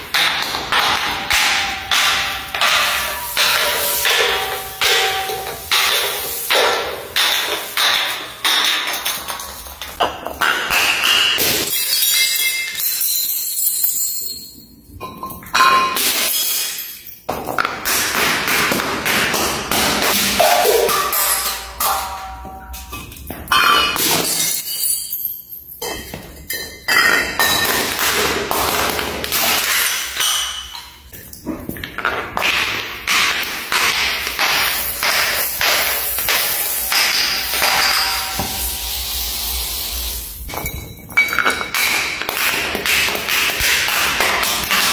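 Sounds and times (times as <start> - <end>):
glass bottles shattering on stairs: 0.0 - 39.2, 40.1 - 44.9
glass beads and marbles bouncing: 7.2 - 17.6, 34.2 - 44.9.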